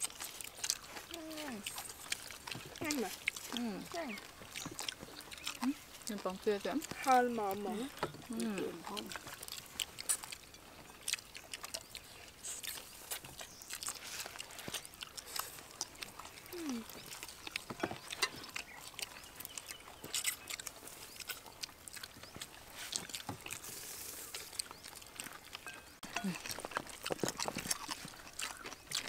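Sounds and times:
people slurping noodles: 14.1s - 20.4s, 22.6s - 24.8s.

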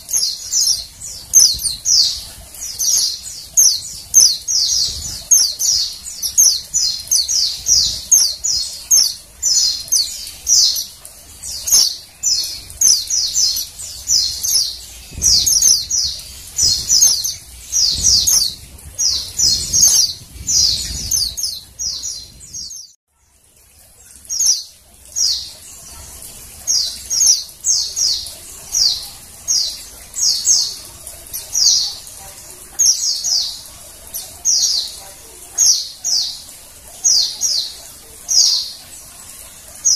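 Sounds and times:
bird chirping: 0.0s - 23.0s.

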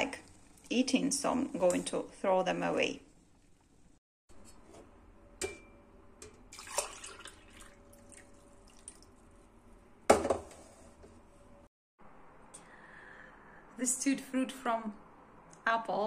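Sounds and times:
liquid pouring into mug: 6.5s - 9.2s
pot knocking on countertop: 10.1s - 10.5s.

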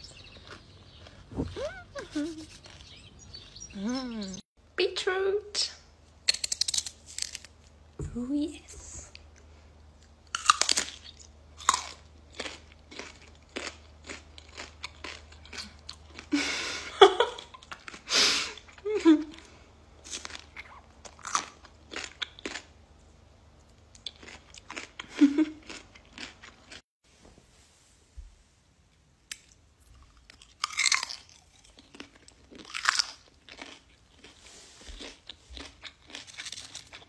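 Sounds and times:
beetroot crunching and chewing: 0.0s - 4.2s, 6.2s - 7.8s, 9.2s - 16.3s, 17.4s - 22.8s, 23.6s - 26.8s, 29.3s - 37.0s
crisp bites into garlic: 6.3s - 7.5s.

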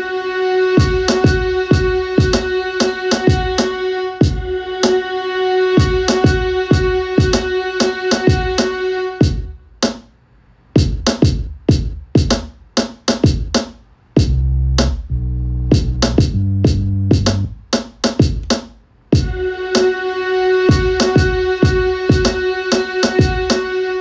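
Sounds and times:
electronic percussion beat: 0.8s - 5.0s, 5.8s - 10.0s, 10.8s - 15.1s, 15.7s - 20.0s, 20.7s - 23.7s
deep synth bass line: 14.2s - 17.6s.

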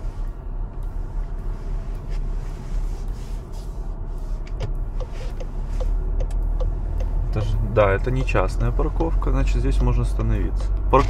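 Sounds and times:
car engine and tyres rumbling: 0.0s - 11.0s
faint ticks: 4.6s - 9.2s.

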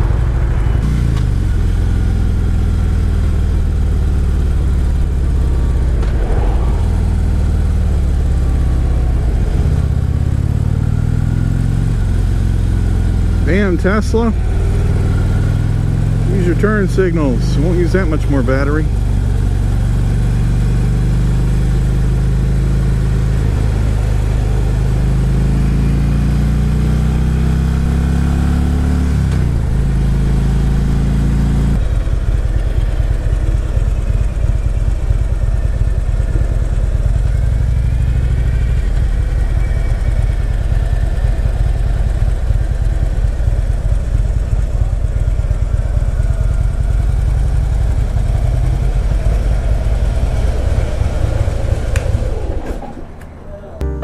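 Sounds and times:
motorcycle engine running: 0.0s - 52.5s
wind noise: 5.2s - 11.0s.

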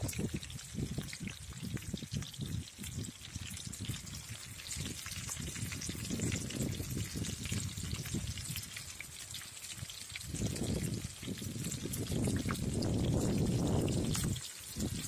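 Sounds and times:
fish frying in sizzling oil: 0.0s - 15.0s.

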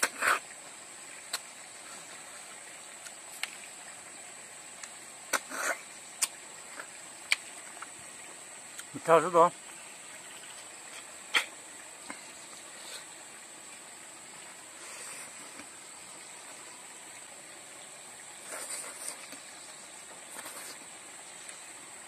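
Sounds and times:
outdoor hiss: 0.0s - 22.0s
eating noises: 4.7s - 9.0s.

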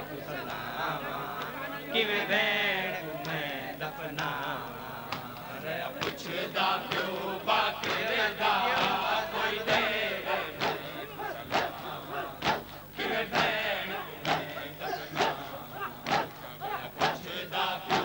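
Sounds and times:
men chanting in unison: 0.0s - 18.0s
chest-beating slaps: 16.0s - 16.4s.

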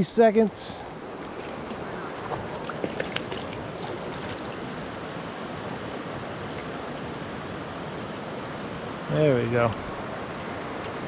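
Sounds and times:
river current rushing: 0.0s - 11.0s
fish splashing: 1.3s - 4.6s.

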